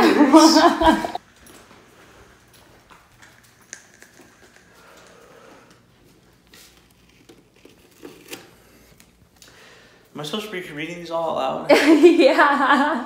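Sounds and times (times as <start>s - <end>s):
paper card rustling: 6.4s - 9.4s.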